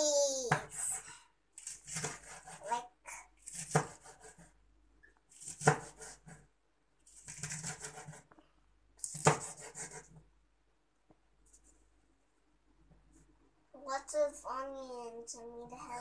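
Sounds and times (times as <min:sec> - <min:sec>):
knife rasping through onion: 0:01.6 - 0:02.7, 0:03.4 - 0:04.6, 0:05.3 - 0:06.4, 0:07.1 - 0:08.3, 0:09.0 - 0:10.2.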